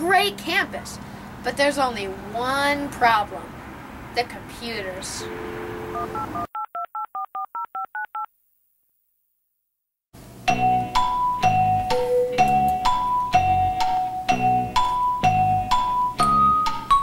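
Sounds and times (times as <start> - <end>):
telephone dial tone: 5.3 - 8.3
touch-tone keypad beeps: 5.3 - 8.3
marimba-like music over bass beat: 10.6 - 17.0.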